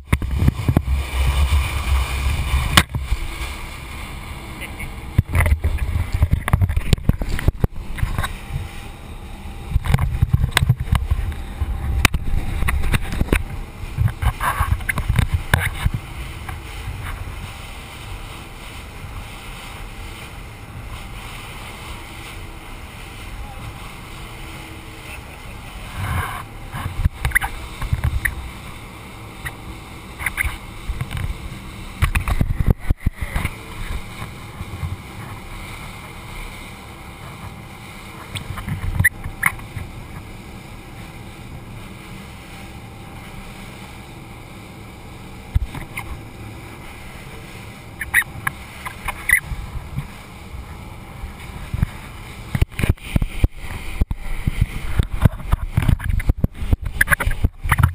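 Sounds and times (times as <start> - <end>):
boat engine and water rushing: 0.0 - 57.9
wind buffeting microphone: 0.0 - 57.9.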